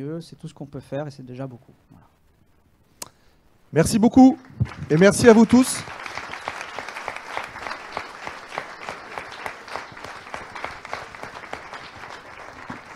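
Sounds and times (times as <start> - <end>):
audience applauding: 4.4 - 12.9.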